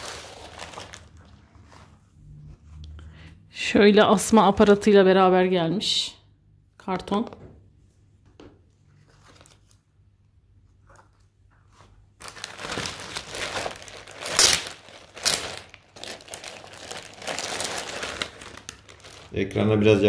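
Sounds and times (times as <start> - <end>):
plastic bag crinkling: 0.0 - 1.4, 12.2 - 19.7.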